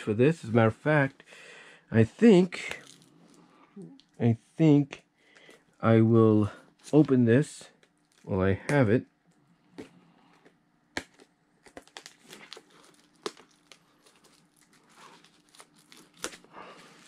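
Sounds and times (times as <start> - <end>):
packaging tearing and crinkling: 2.6 - 3.4, 11.0 - 17.0.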